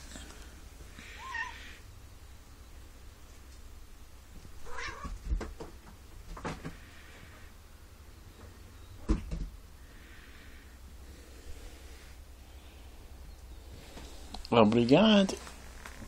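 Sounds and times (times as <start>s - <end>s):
cat meowing: 1.0s - 1.8s, 4.6s - 5.2s
knocks and thumps on cat tree: 5.0s - 6.8s, 9.0s - 9.6s.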